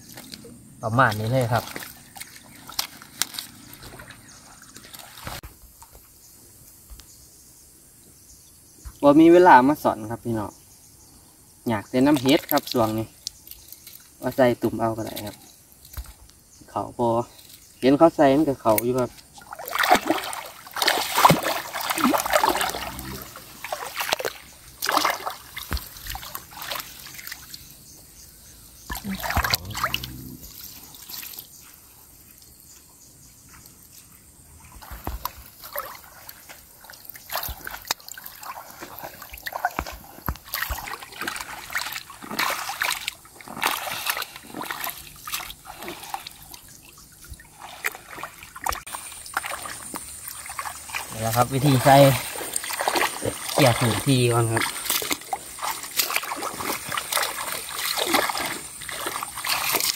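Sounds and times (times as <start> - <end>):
shallow water splashing: 0.0 - 5.4, 17.4 - 31.6, 34.6 - 59.9.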